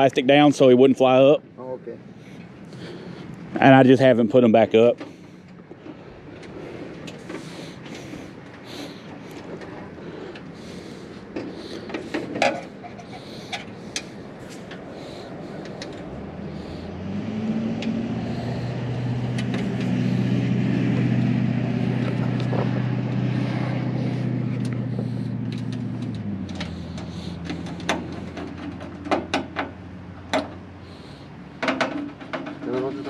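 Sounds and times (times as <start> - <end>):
vehicle engine running: 1.8 - 33.0.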